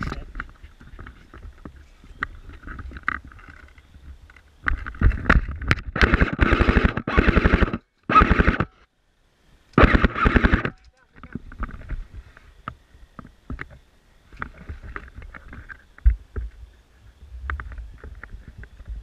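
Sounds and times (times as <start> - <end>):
faint clicks and knocks: 0.0 - 8.1
airsoft guns firing bursts: 6.0 - 8.7, 9.8 - 10.7.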